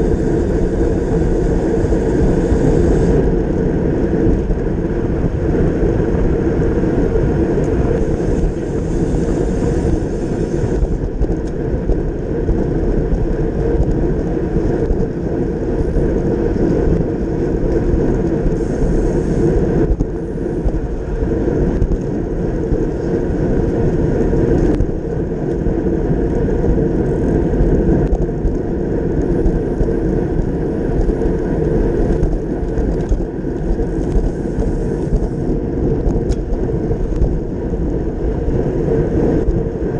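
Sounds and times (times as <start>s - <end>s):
wind rush buffeting microphone: 0.0s - 39.9s.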